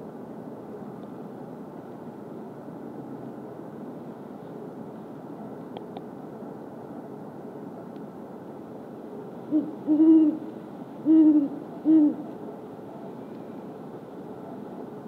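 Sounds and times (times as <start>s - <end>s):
owl hooting: 9.5s - 12.3s.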